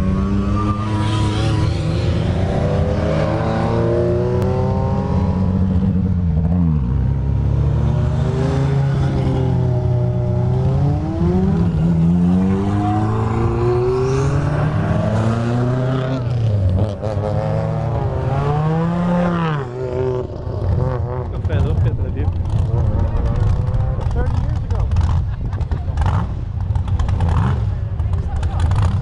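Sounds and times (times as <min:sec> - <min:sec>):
rally cars revving past: 0:00.0 - 0:25.3.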